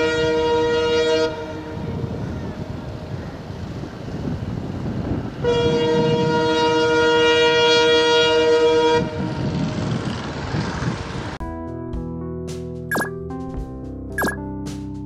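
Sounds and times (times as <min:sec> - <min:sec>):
train horn blast: 0:00.0 - 0:02.1, 0:05.4 - 0:09.5
train rumbling on track: 0:00.2 - 0:07.8, 0:08.5 - 0:11.4.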